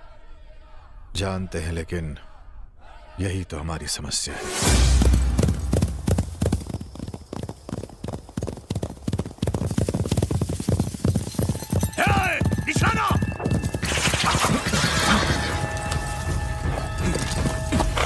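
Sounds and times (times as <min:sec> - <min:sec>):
horses galloping hoofbeats: 0:04.8 - 0:18.0.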